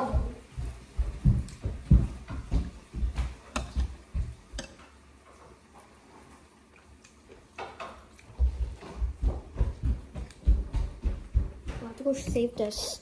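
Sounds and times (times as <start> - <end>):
footsteps thudding on floor: 0.1 - 4.4, 8.4 - 12.7.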